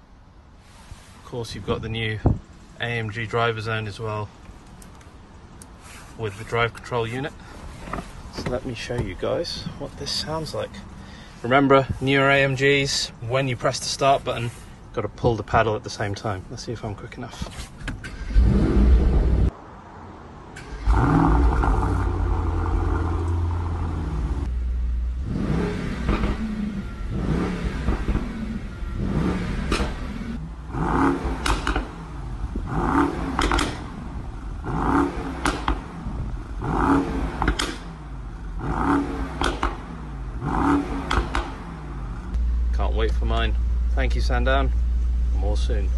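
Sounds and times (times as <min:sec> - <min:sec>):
car engine starting and idling: 0:18.0 - 0:19.6, 0:20.5 - 0:45.9
engine revving in short blips: 0:25.1 - 0:34.0.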